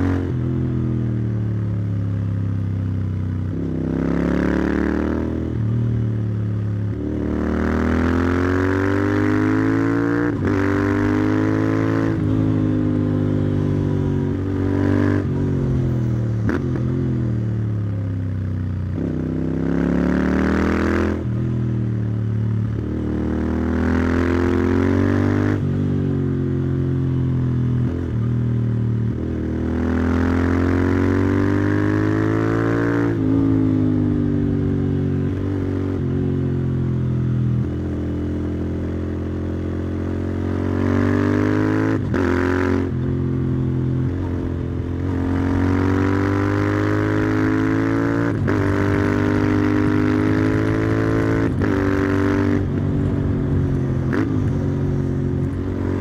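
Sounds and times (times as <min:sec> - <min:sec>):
motorcycle exhaust accelerating: 0:00.0 - 0:56.0.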